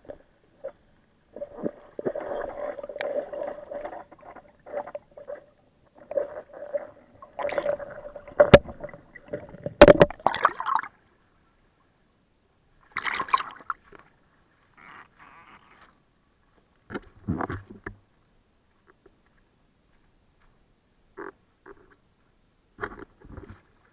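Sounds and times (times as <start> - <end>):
underwater gurgling: 0.0 - 10.9
water splashing: 0.0 - 10.9.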